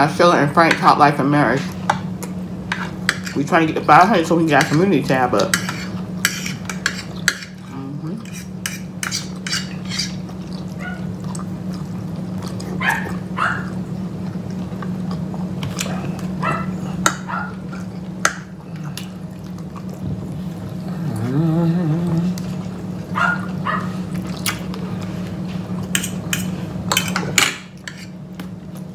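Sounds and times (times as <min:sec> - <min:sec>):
people chewing: 0:04.6 - 0:28.9
forks scraping on plates: 0:05.4 - 0:10.2, 0:25.9 - 0:28.2
low hum: 0:07.1 - 0:28.9.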